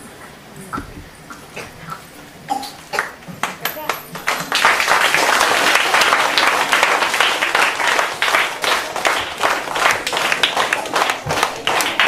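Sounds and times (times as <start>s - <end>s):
children applauding: 3.0s - 12.0s.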